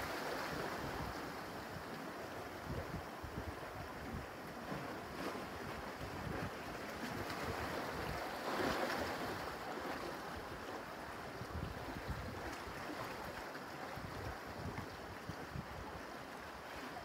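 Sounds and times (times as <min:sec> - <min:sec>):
waves washing over rocks: 0:00.0 - 0:03.0
wind rumble on microphone: 0:00.0 - 0:10.7, 0:11.3 - 0:17.0.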